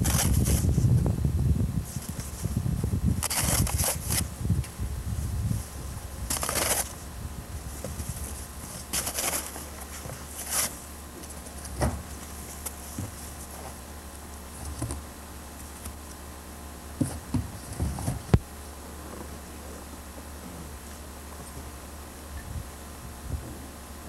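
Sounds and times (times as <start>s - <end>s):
paper and cardboard rustling: 0.0s - 0.9s, 3.2s - 4.3s, 5.5s - 7.0s, 7.6s - 13.8s, 17.0s - 18.3s
low hum: 0.0s - 24.0s.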